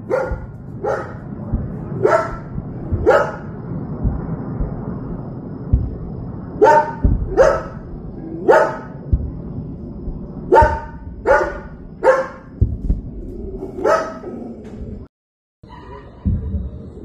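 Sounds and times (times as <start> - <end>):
dog barking: 0.0 - 1.2, 2.0 - 3.5, 6.6 - 7.8, 8.4 - 8.9, 10.5 - 12.5, 13.7 - 14.5
dull low thumps: 0.0 - 13.9, 16.2 - 17.0
low rumble: 0.0 - 17.0.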